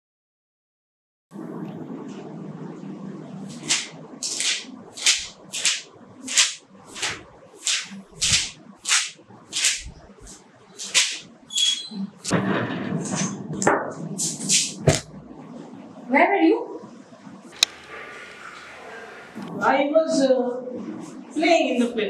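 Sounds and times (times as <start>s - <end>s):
low steady hum: 1.4s - 22.0s
notebook pages flipping: 3.5s - 11.9s.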